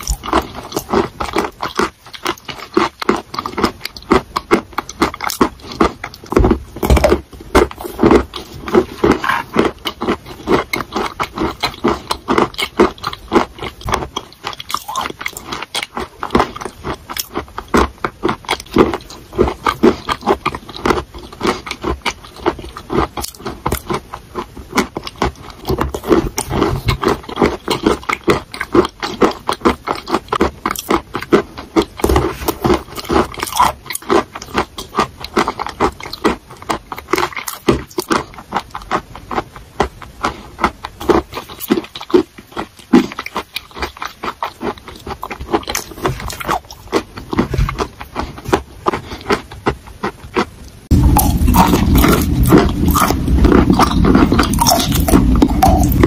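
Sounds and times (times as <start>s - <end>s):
chewing wet crunches: 0.0s - 56.0s
spoon scraping ceramic bowl: 9.0s - 9.6s.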